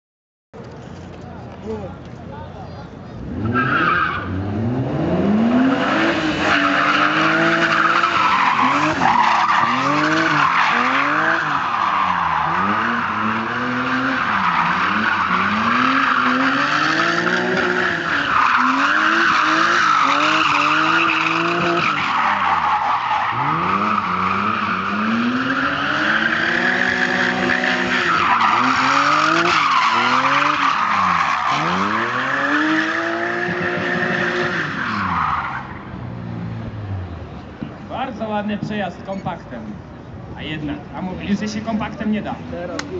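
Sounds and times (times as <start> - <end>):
car engine revving: 3.2 - 37.4.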